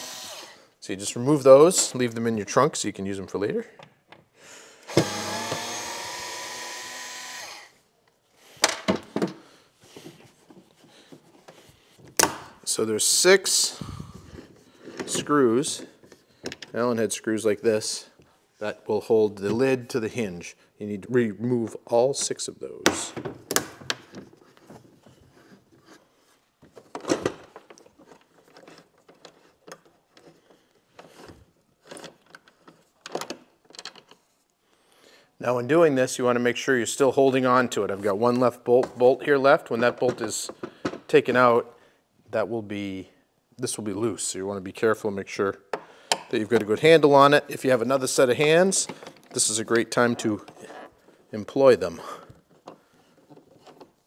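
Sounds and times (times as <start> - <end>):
electric screwdriver whirring: 0.0 - 0.7, 4.9 - 7.8.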